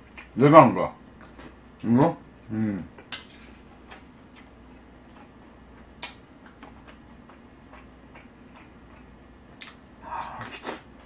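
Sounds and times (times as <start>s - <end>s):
mouth clicks while chewing: 6.0s - 10.9s.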